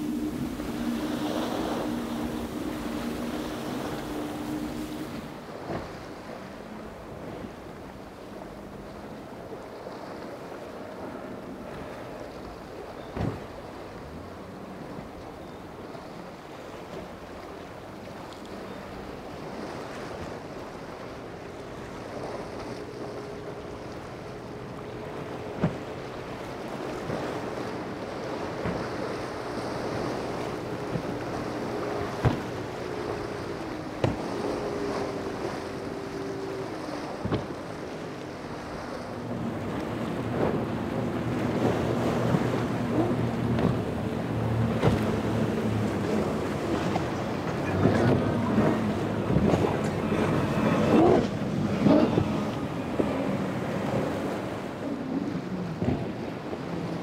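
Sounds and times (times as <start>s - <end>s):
wind buffeting microphone: 0.0s - 13.9s, 21.8s - 57.0s
powerboat engine hum: 0.0s - 57.0s
surf: 0.0s - 57.0s.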